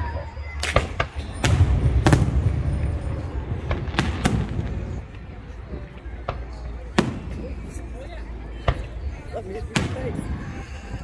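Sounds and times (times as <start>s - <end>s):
fireworks bangs: 0.6s - 7.9s, 9.7s - 10.5s
low rumble of booms: 1.4s - 7.4s.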